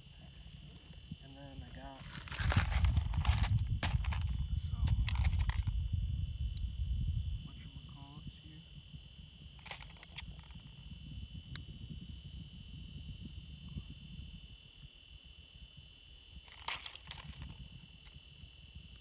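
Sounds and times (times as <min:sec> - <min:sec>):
high-pitched whine: 0:00.0 - 0:19.0
low wind rumble: 0:00.0 - 0:19.0
fishing gear clicks and rustles: 0:01.9 - 0:05.7, 0:09.6 - 0:10.7, 0:16.4 - 0:18.2.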